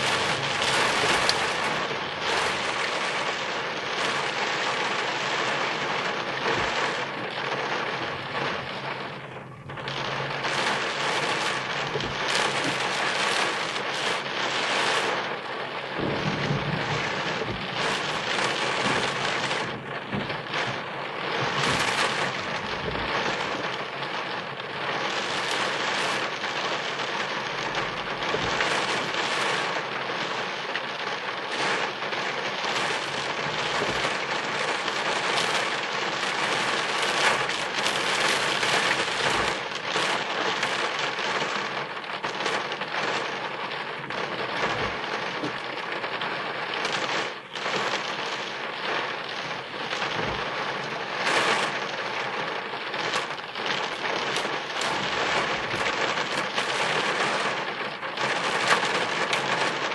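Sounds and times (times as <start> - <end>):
thunder rumble: 0.0 - 30.1
heavy rain on car roof: 0.0 - 59.9.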